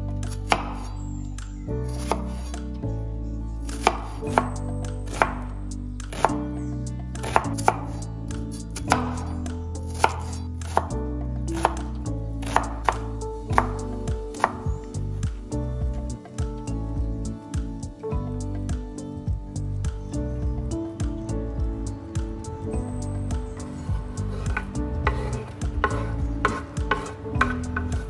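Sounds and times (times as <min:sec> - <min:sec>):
knife chopping on wooden board: 0:03.7 - 0:04.5, 0:06.1 - 0:06.4, 0:07.2 - 0:08.0, 0:11.6 - 0:14.6, 0:24.3 - 0:28.0.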